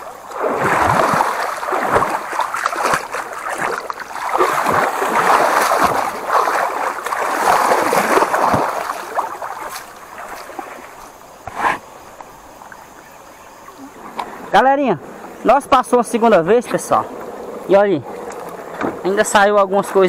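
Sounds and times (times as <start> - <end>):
water splashing: 0.0 - 20.0.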